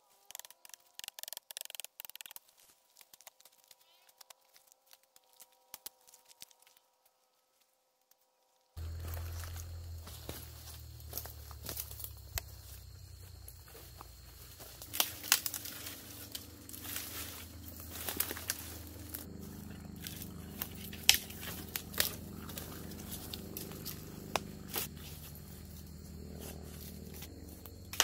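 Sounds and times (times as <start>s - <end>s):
twigs snapping underfoot: 0.0s - 8.2s, 8.8s - 24.9s, 27.1s - 28.0s
footsteps crashing through brush: 8.8s - 19.3s
airplane droning: 8.8s - 28.0s.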